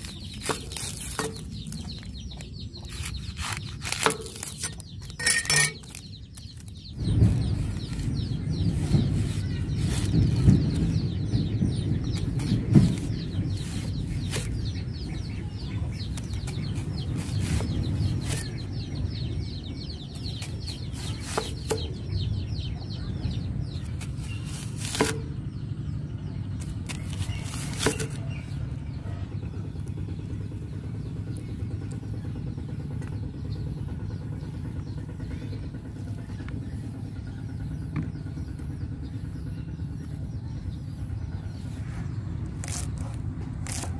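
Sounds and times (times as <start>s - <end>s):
steady low rumble: 0.0s - 43.9s
cleaver chopping on wooden board: 20.4s - 22.0s, 24.3s - 25.3s, 26.8s - 28.2s.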